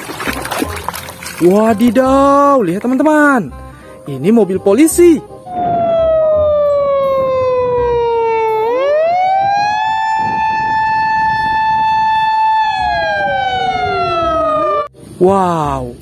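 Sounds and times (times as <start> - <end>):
police car siren wailing: 5.5 - 14.9.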